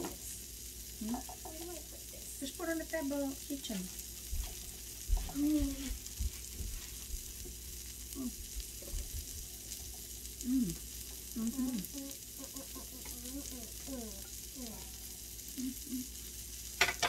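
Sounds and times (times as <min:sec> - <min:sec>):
meat sizzling on a griddle: 0:00.0 - 0:17.0
person humming briefly: 0:05.2 - 0:06.0, 0:08.1 - 0:09.1, 0:10.4 - 0:16.1.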